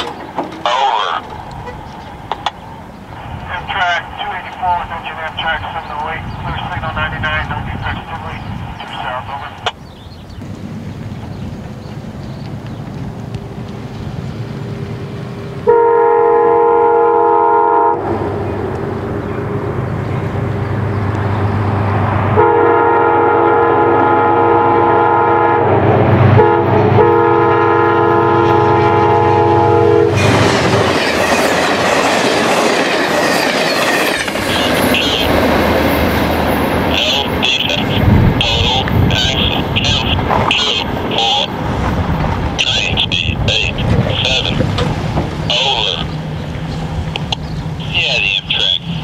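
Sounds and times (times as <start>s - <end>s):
locomotive engine hum: 0.0s - 49.0s
train passing: 0.0s - 49.0s
train air horn blasts: 15.6s - 18.5s, 22.4s - 25.8s, 26.4s - 30.5s.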